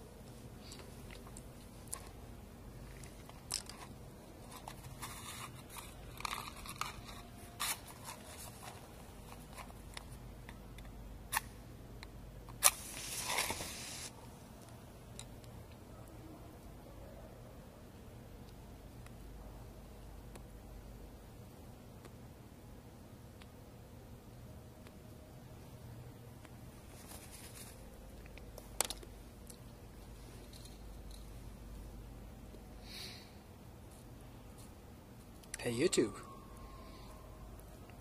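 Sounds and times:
match striking and flaring: 0:12.6 - 0:14.1.

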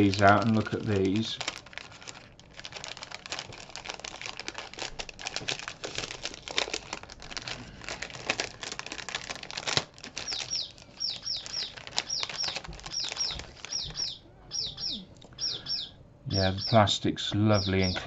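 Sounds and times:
plastic bag crinkling: 0:00.0 - 0:14.2
high falling chirps: 0:10.2 - 0:18.0.

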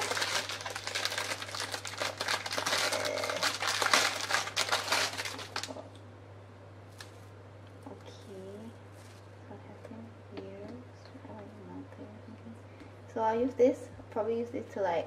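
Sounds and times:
plastic sleeve crinkling: 0:00.0 - 0:05.9.

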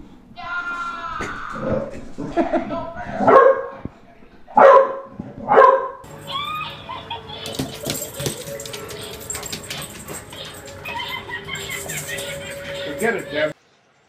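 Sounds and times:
bulldog barking: 0:03.2 - 0:03.8, 0:04.5 - 0:13.2.

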